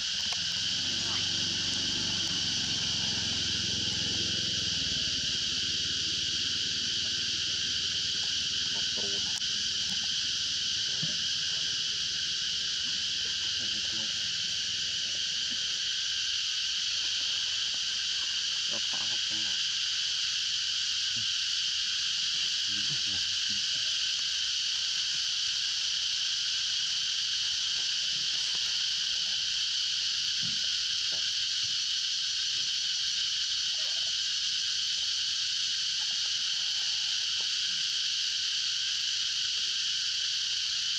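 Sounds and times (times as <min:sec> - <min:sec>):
insect chorus drone: 0:00.0 - 0:40.9.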